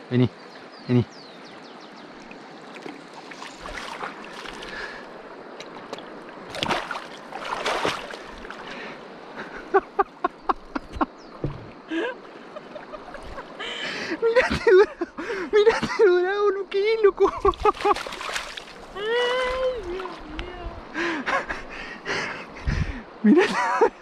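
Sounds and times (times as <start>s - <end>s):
fish thrashing in shallow water: 2.7s - 8.7s, 17.5s - 20.2s
sharp wet slaps: 5.6s - 8.2s.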